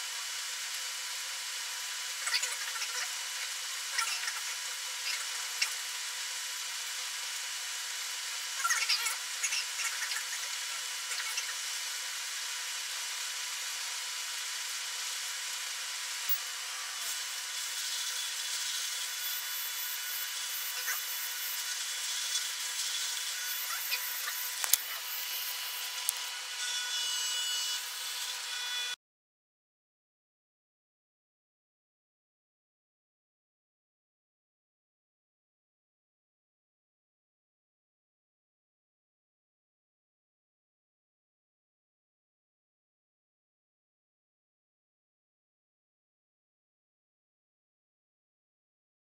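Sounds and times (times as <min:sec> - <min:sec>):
steady cooking hiss: 0:00.0 - 0:26.6.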